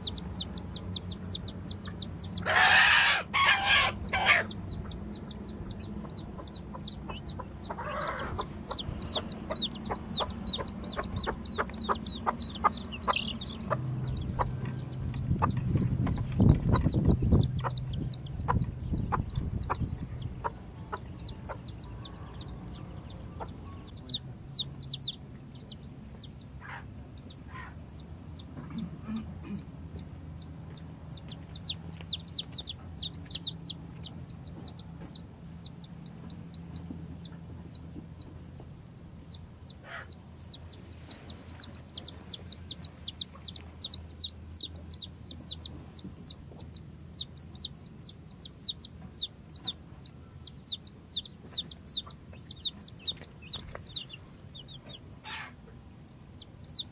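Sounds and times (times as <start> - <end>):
chicks peeping: 0.0 - 56.9
low rumble: 4.0 - 39.7.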